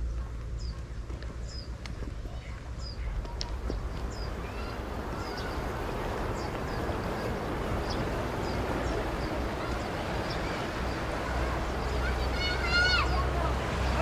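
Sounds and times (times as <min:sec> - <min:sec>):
small birds chirping: 0:00.0 - 0:14.0
wind rumbling on microphone: 0:00.0 - 0:14.0
wind rushing: 0:03.5 - 0:14.0.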